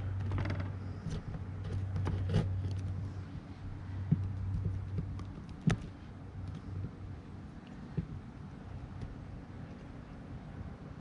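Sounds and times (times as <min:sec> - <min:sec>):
sharp clicks and rustles: 0:00.0 - 0:03.1, 0:04.0 - 0:07.0
steady low hum: 0:00.0 - 0:11.0.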